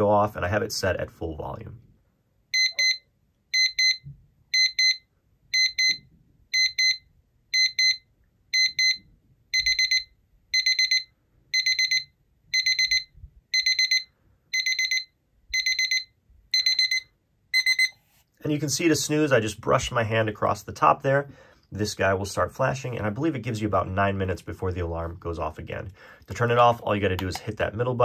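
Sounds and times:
alarm clock beeping: 0:02.5 - 0:18.0.

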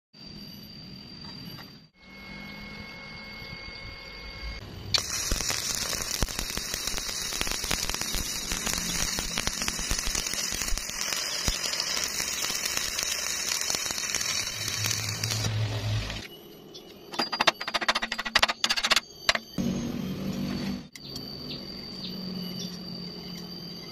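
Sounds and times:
welding arc crackling: 0:04.8 - 0:16.3.

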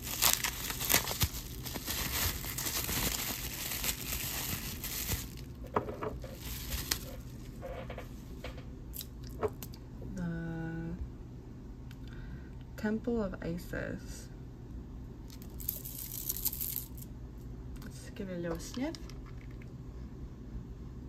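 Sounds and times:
bubble wrap crinkling: 0:00.0 - 0:07.6, 0:15.3 - 0:17.0.

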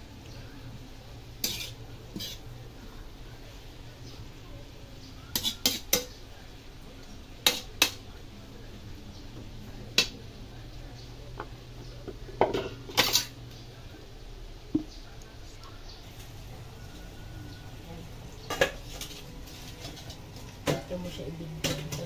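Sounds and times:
metal spatula scraping wok: 0:01.3 - 0:02.5, 0:05.3 - 0:06.1.

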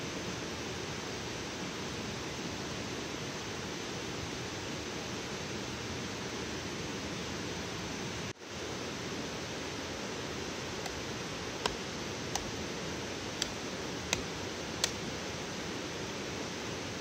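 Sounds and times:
forest ambience hiss: 0:00.0 - 0:17.0
sticks cracking: 0:11.6 - 0:12.6, 0:13.3 - 0:15.1.

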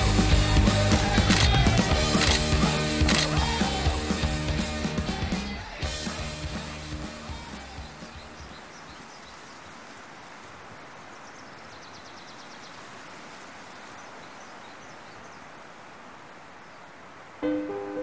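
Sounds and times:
bird chirps: 0:07.6 - 0:09.7
plucked ukulele music: 0:17.4 - 0:18.0.

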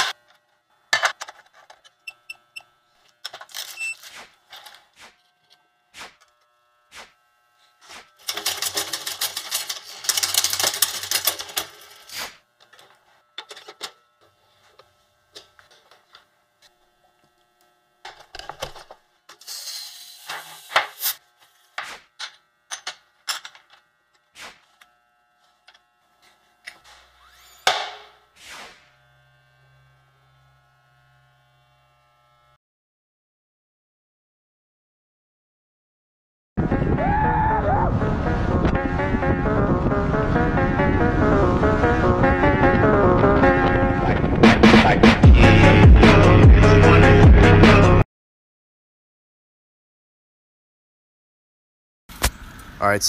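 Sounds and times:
rapid clicking and rattling: 0:08.2 - 0:12.0
short high hiss: 0:19.4 - 0:21.2.

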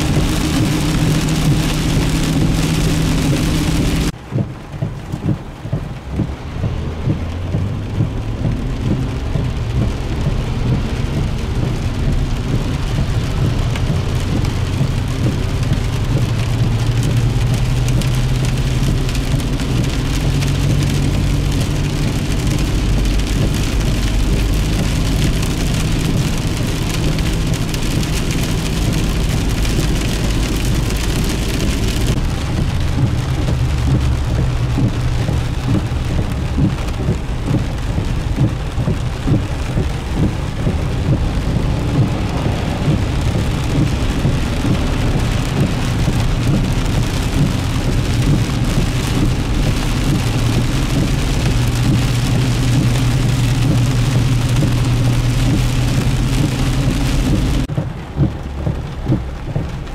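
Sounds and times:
engine and road hum: 0:00.0 - 0:59.9
heavy rain on car roof: 0:00.0 - 0:59.9.

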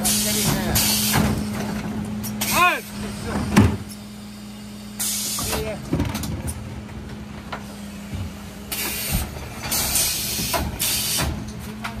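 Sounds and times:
refuse truck humming: 0:00.0 - 0:12.0
hydraulic hissing bursts: 0:04.9 - 0:05.5, 0:08.7 - 0:11.4.

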